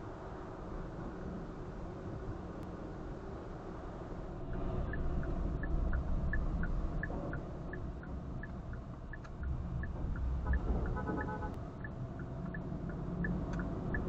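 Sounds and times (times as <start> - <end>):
engine and road rumble: 0.0 - 14.0
turn signal ticking: 4.5 - 14.0
beep of steady tones: 4.6 - 12.6, 13.2 - 14.0.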